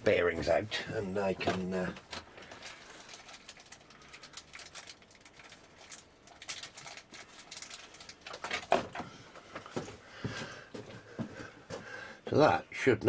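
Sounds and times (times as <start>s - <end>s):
hands handling small parts: 1.4s - 9.9s.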